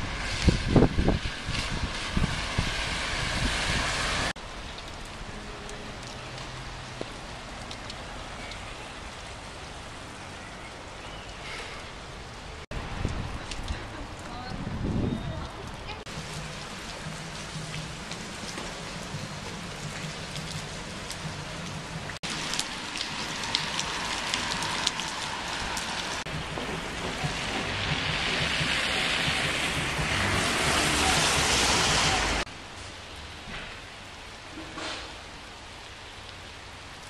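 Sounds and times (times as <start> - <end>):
rain on wet pavement: 0.0 - 37.0
close water drops ticking: 4.7 - 8.9.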